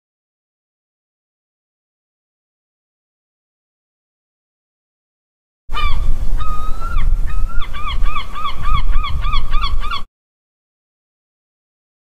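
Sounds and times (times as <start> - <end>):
seagull crying: 5.7 - 10.1.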